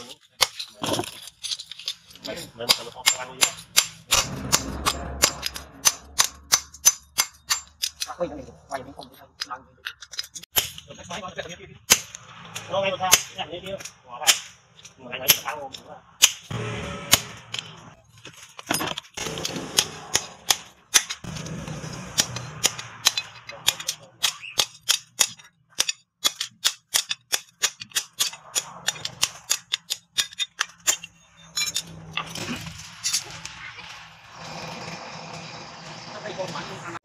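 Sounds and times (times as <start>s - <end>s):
hammer striking steel on anvil: 2.6s - 8.1s, 16.2s - 17.9s, 19.2s - 31.9s.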